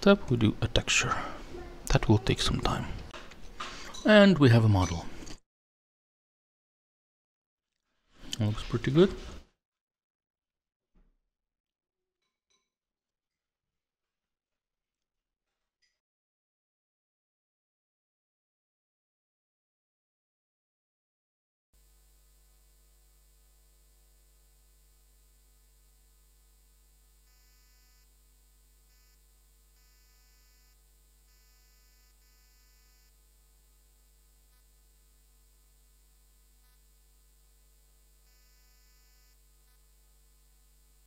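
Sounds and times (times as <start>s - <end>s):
faint electrical mains hum: 0.0s - 5.4s, 21.8s - 41.0s.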